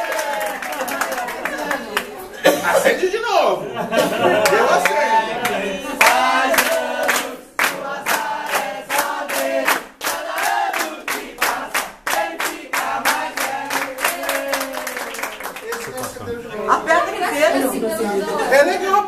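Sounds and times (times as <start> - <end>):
people clapping in rhythm: 0.0 - 2.6, 4.4 - 16.4
group singing: 3.8 - 15.4.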